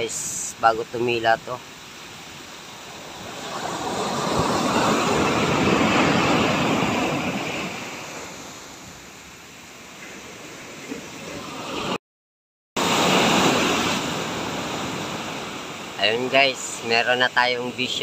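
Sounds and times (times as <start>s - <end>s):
heavy surf waves: 0.0s - 12.0s, 12.8s - 18.0s.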